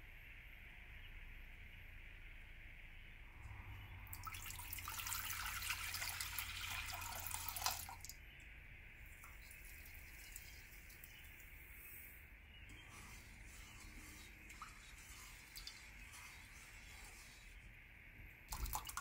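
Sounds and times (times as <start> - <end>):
sugar pouring into water: 4.1 - 8.1, 9.1 - 11.5, 12.8 - 17.6, 18.5 - 19.0
water pouring into a saucepan: 4.1 - 8.1, 9.2 - 11.2, 18.5 - 19.0.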